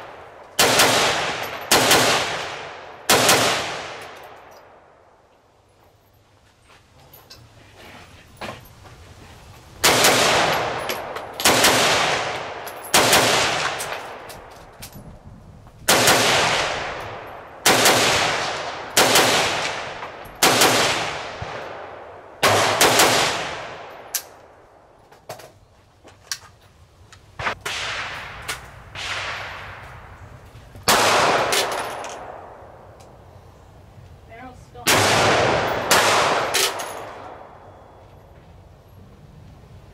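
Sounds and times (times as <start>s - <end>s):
gunshots with echo: 34.9s - 37.5s.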